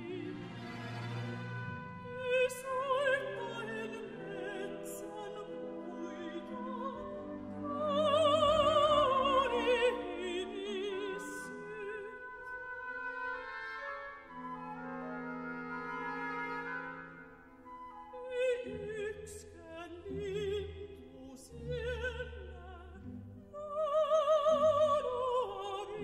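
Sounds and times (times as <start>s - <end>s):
sustained orchestral strings: 0.0s - 26.0s
woman singing with vibrato: 2.1s - 12.9s, 18.1s - 26.0s.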